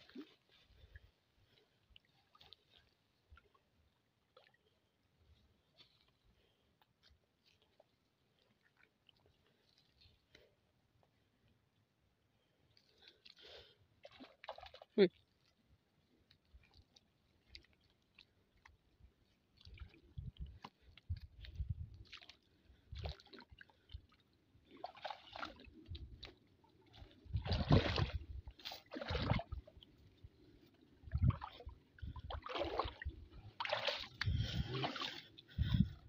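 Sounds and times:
water splashing and sloshing: 0:00.0 - 0:36.0
mud squelching: 0:12.8 - 0:36.0.

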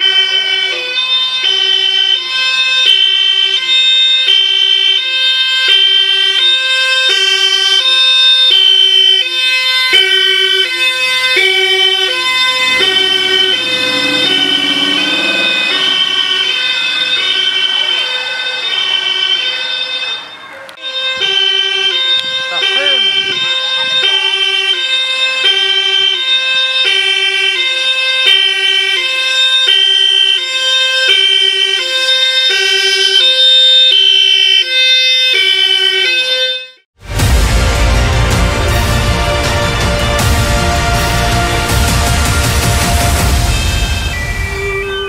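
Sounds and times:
two-tone police siren: 0:00.0 - 0:45.0
low car rumble: 0:10.1 - 0:25.4.

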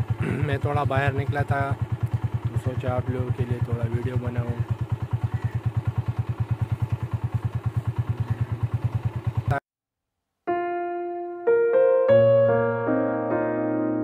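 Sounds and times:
engine running: 0:00.0 - 0:09.6
piano music: 0:10.5 - 0:14.0.

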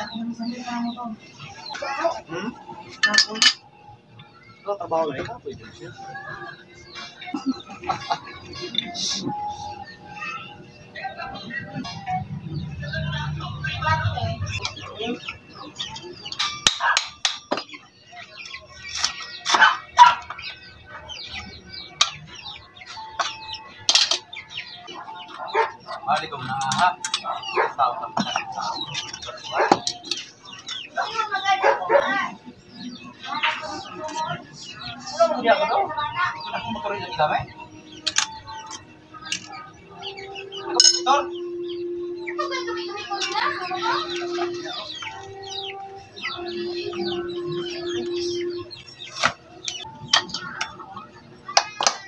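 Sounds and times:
chickens chirping and clucking: 0:00.0 - 0:52.0
low drone: 0:11.6 - 0:15.2
wrench clanking on metal: 0:40.8 - 0:41.1.

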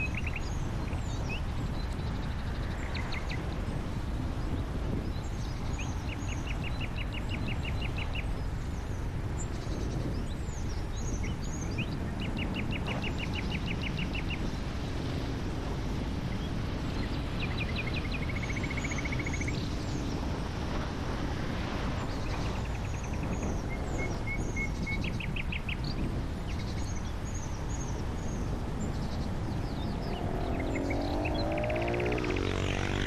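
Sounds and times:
songbirds chirping and trilling: 0:00.0 - 0:33.0
car driving low rumble: 0:26.0 - 0:33.0.

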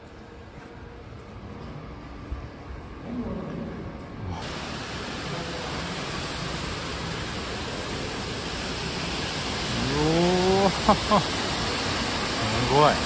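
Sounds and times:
waterfall roaring: 0:04.2 - 0:13.0.

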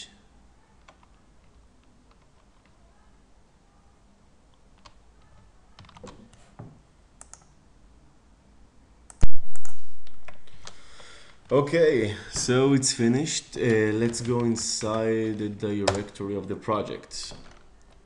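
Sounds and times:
mouse clicks: 0:07.2 - 0:07.6, 0:09.1 - 0:10.8.

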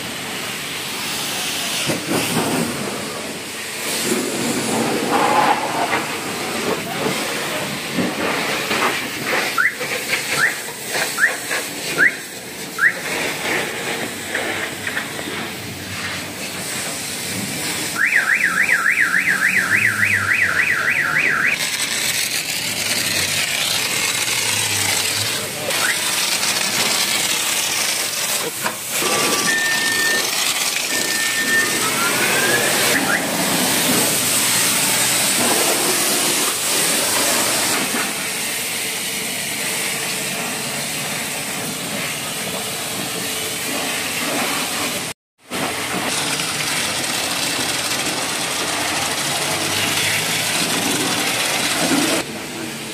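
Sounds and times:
foam sprayer hissing: 0:00.0 - 0:52.9
car alarm warbling: 0:09.6 - 0:10.6, 0:12.0 - 0:13.0, 0:18.0 - 0:21.6, 0:29.4 - 0:33.4
short beeps: 0:29.4 - 0:30.2.

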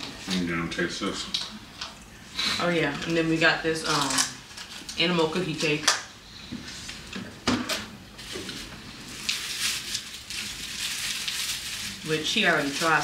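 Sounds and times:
packaging crinkling: 0:08.2 - 0:13.0.

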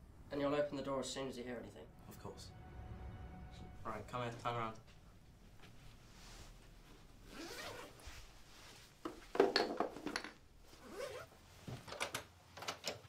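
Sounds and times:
fabric rustling: 0:05.5 - 0:09.4, 0:10.6 - 0:11.9
zipper being pulled: 0:07.2 - 0:08.2, 0:10.7 - 0:11.3.

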